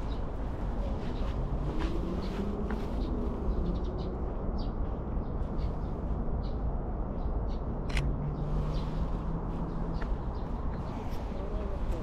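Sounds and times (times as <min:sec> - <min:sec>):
camera shutter click: 0:07.9 - 0:08.1.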